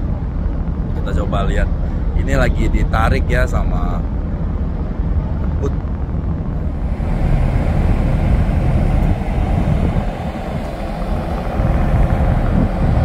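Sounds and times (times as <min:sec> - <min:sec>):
ship low rumble: 0:00.0 - 0:13.0
wind buffeting microphone: 0:00.0 - 0:13.0.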